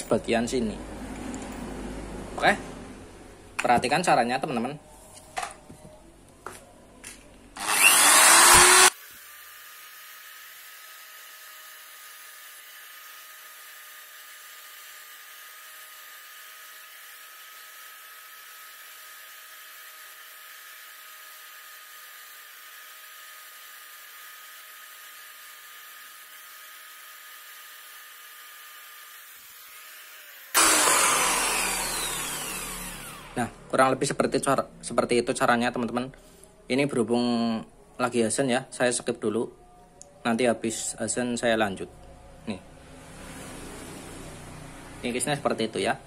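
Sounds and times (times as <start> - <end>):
electric drill grinding whine: 7.6 - 33.6.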